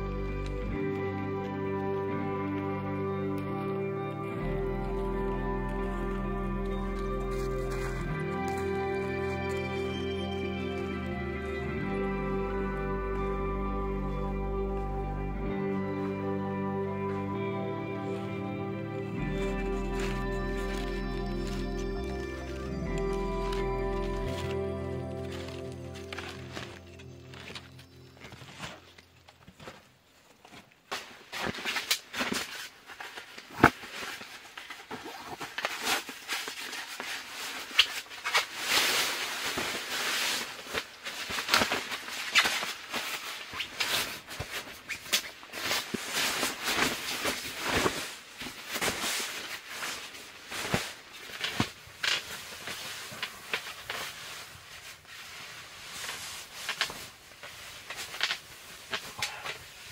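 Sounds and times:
fabric rustling: 0:18.0 - 0:59.9.

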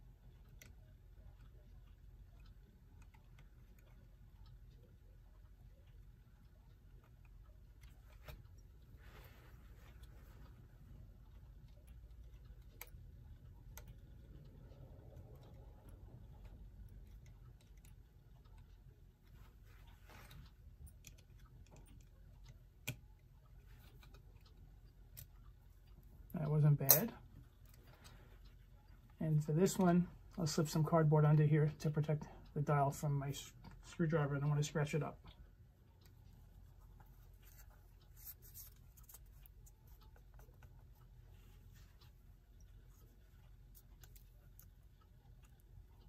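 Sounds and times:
low steady hum: 0:00.0 - 0:46.0
screwdriver scratching and clicking: 0:36.8 - 0:41.1.

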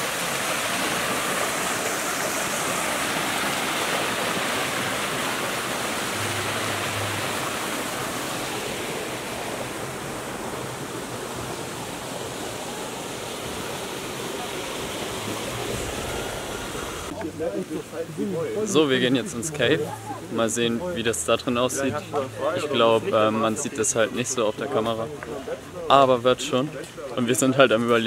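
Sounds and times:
steady rushing noise: 0:00.0 - 0:18.2.

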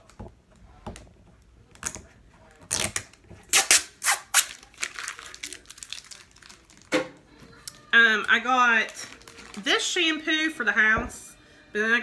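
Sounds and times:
plastic rustling and crinkling: 0:04.3 - 0:10.5.

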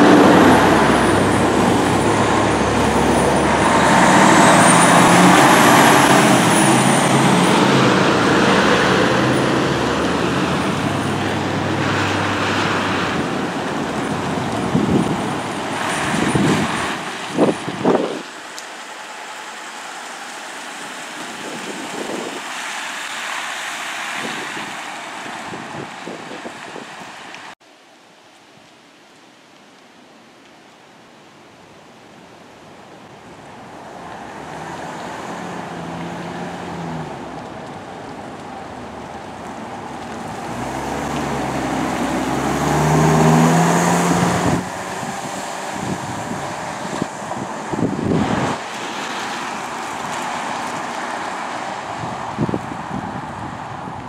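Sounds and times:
wind on microphone: 0:00.0 - 0:18.3, 0:21.2 - 0:22.6, 0:24.1 - 0:27.5, 0:39.3 - 0:54.0
vehicle engines passing: 0:00.0 - 0:27.6, 0:33.3 - 0:54.0
tyres on wet pavement: 0:00.0 - 0:54.0.

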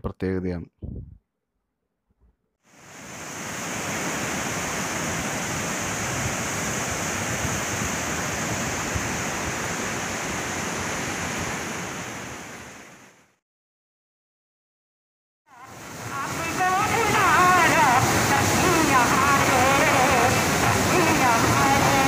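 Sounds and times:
river rushing: 0:02.7 - 0:13.3, 0:15.5 - 0:22.0.

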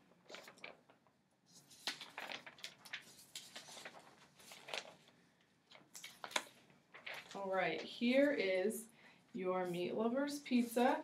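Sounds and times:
paper rustling and crinkling: 0:00.2 - 0:08.6.

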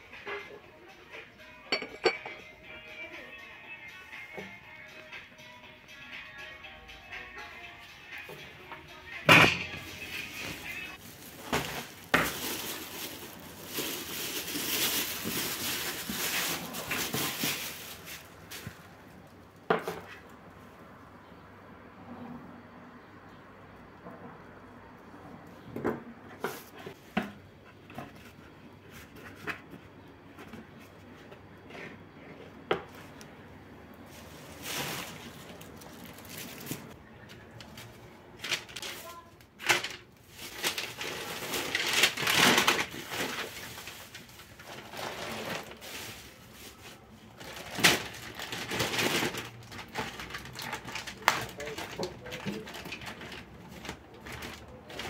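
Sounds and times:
paper and plastic crinkling: 0:09.8 - 0:19.6, 0:34.0 - 0:55.0.

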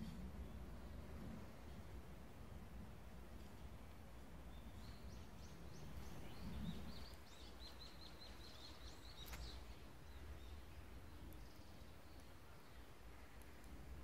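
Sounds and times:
bird chirping: 0:04.5 - 0:13.0.

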